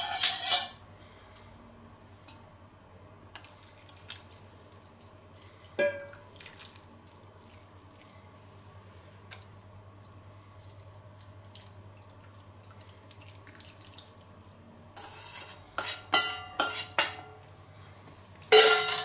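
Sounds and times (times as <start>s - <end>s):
metal spoon clanking on bowl: 15.0s - 17.3s, 18.5s - 19.0s.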